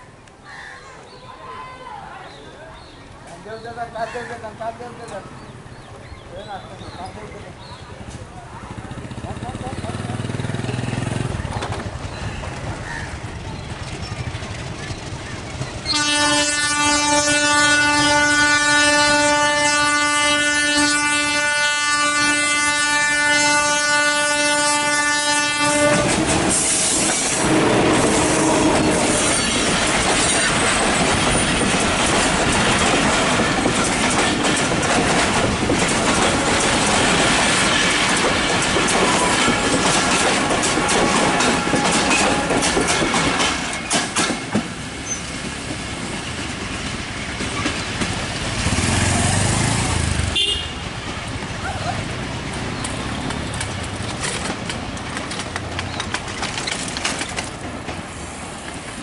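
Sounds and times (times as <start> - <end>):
train wheels clattering over rail joints: 9.0 - 16.4, 25.6 - 49.8, 52.3 - 59.0
locomotive air horn blast: 15.9 - 29.3, 50.3 - 50.8.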